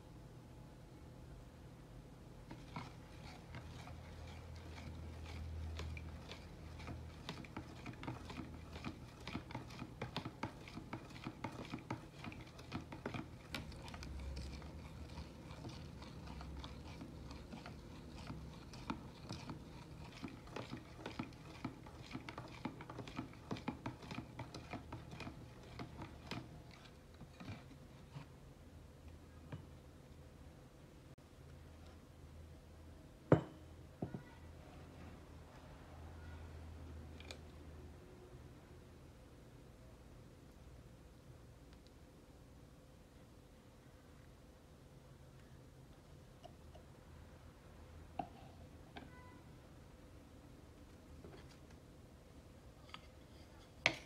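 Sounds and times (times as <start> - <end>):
spoon stirring in plastic jug: 2.3 - 28.6, 37.0 - 37.6, 46.0 - 47.0, 48.1 - 49.5, 50.8 - 51.9, 52.6 - 54.0.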